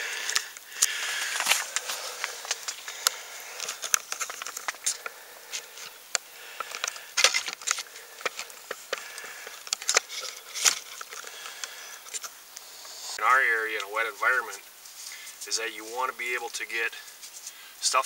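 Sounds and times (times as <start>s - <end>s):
camera handling noise: 0.2s - 12.3s.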